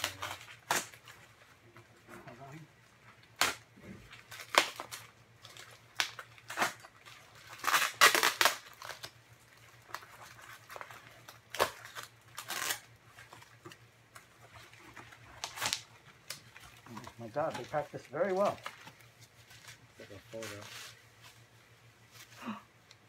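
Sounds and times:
paper crinkling: 4.0 - 22.6
cardboard box cut and torn: 7.5 - 9.2.

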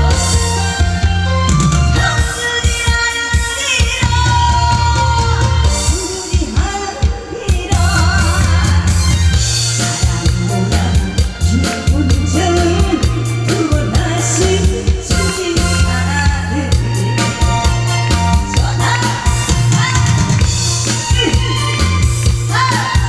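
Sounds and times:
drum and bass beat: 0.0 - 23.0
person singing: 2.0 - 23.0.

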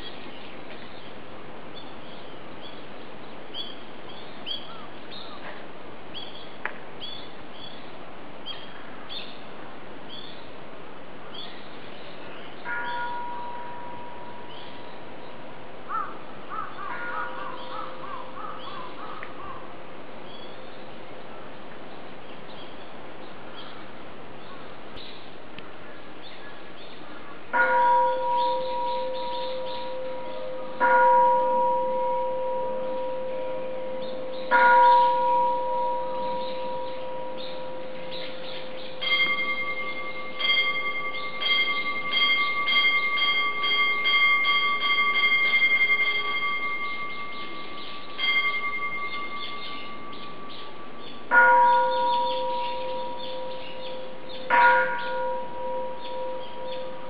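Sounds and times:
bell ringing: 27.6 - 57.0
higher-pitched bell strikes: 27.6 - 57.0.

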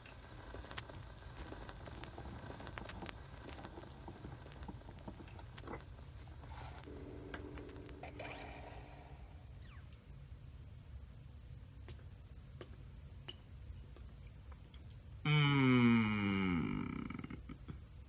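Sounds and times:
low hum: 0.0 - 18.0.

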